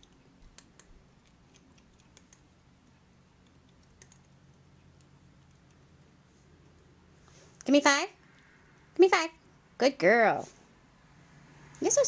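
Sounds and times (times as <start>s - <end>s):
cat crunching a treat: 0.0s - 6.2s
low room hum: 0.0s - 12.0s.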